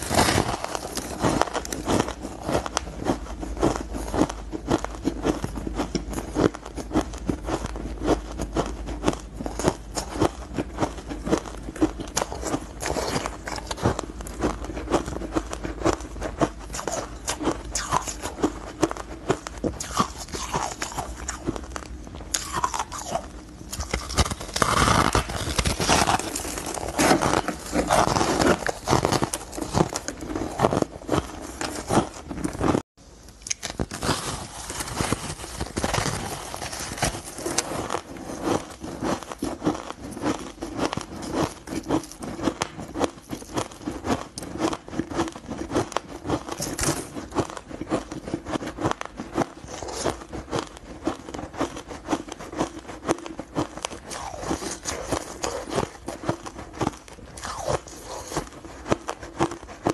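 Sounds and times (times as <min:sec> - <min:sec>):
ice being chewed: 0:00.0 - 0:59.9.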